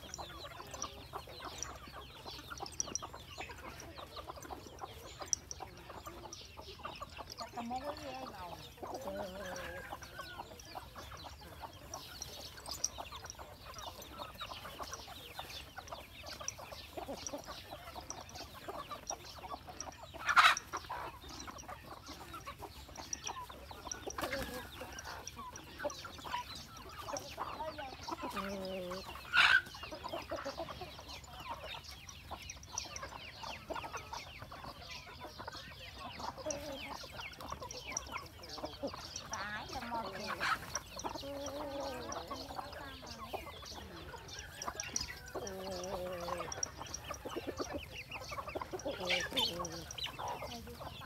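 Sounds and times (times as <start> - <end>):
chickens clucking: 0.0 - 51.0
cow eating from basket: 37.2 - 51.0.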